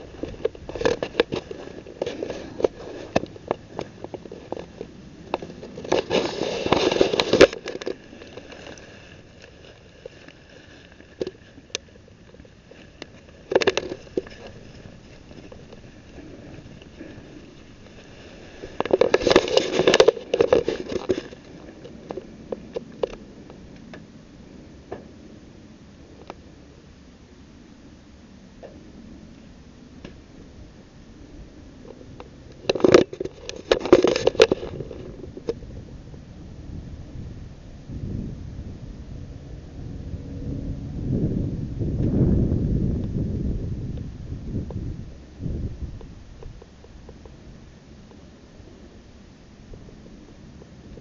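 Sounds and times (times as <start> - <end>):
close rustling and crackling: 0.0 - 24.1, 31.6 - 36.3.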